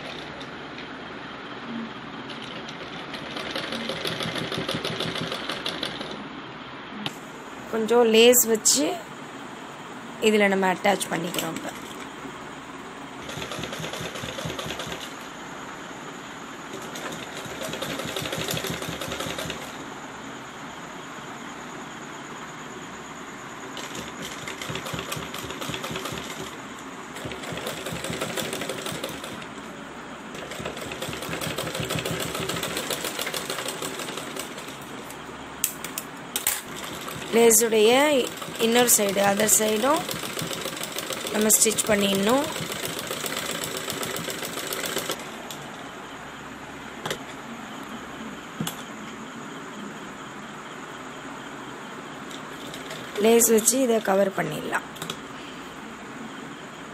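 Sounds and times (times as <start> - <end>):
sewing machine humming: 0.0 - 6.3, 11.0 - 15.4, 16.6 - 20.0, 23.6 - 45.6, 52.3 - 54.1.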